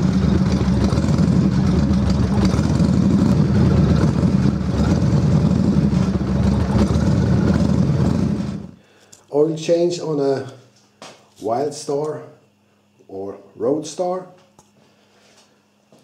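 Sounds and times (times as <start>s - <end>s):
motorcycle engine idling: 0.0s - 8.8s.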